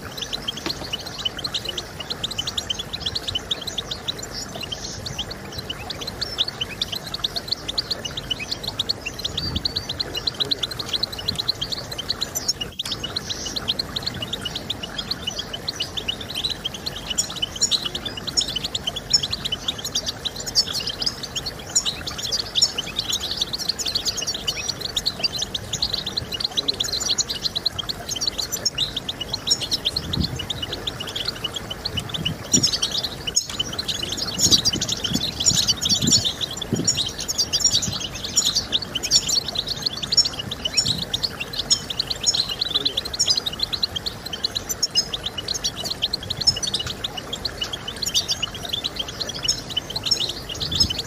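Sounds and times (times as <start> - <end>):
goldfinch twittering: 0.0 - 51.0.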